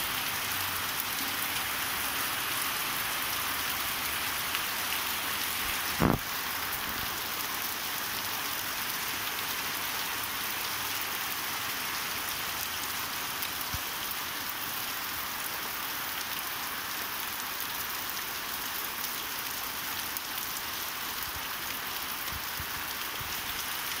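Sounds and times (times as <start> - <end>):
steady rain on trees and grass: 0.0 - 24.0
sharp thump: 6.0 - 6.2.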